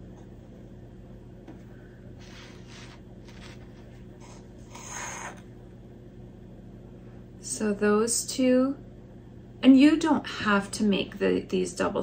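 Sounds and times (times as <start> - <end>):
low steady hum: 0.0 - 12.0
fabric rustling and scraping: 2.2 - 4.5.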